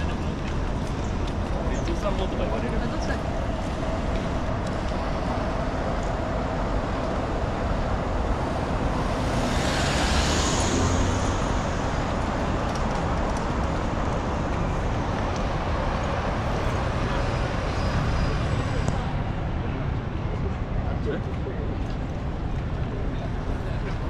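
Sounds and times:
city street traffic: 0.0 - 24.0
vehicle passing close by: 8.0 - 14.0.

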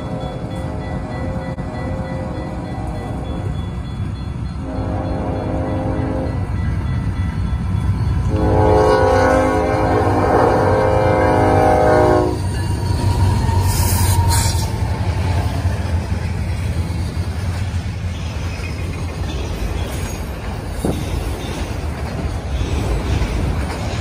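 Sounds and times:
train wheels rumbling on rails: 0.0 - 24.0
train horn: 4.6 - 6.5, 8.2 - 12.5.

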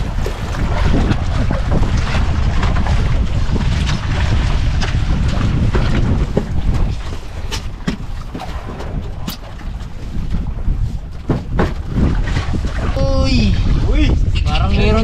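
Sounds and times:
water rushing along boat hull: 0.0 - 15.0
wind buffeting microphone: 0.0 - 15.0
short knocks: 11.2 - 12.0.

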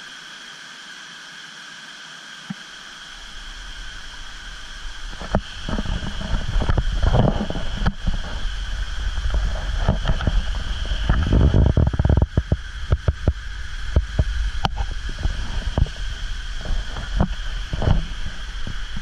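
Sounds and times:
high-pitched hum: 0.0 - 19.0
water cascading over pools: 0.0 - 19.0
wind buffeting microphone: 3.2 - 19.0.

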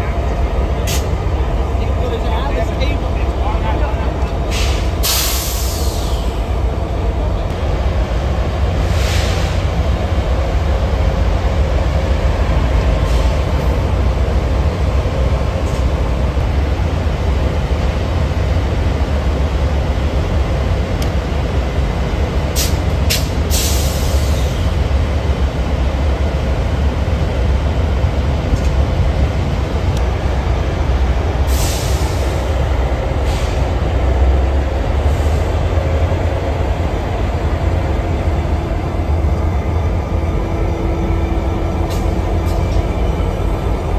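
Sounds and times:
locomotive engine idling: 0.0 - 8.8, 29.4 - 43.9
air hiss bursts: 4.5 - 6.3, 31.5 - 32.4.

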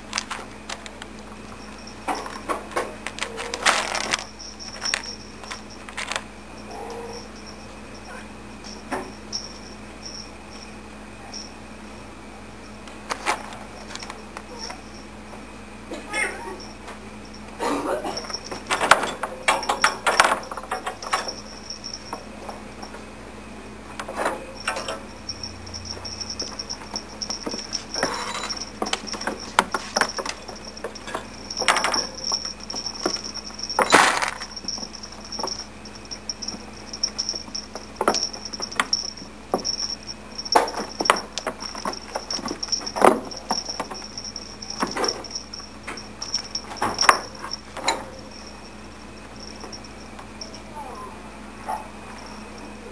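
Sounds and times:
kittens knocking and rattling cage: 0.0 - 7.3, 18.0 - 23.0, 24.0 - 50.2.

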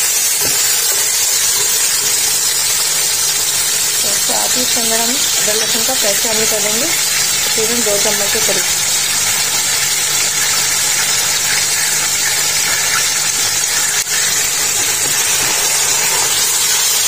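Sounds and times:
food sizzling in hot oil: 0.0 - 17.0
low steady hum: 2.7 - 16.2.

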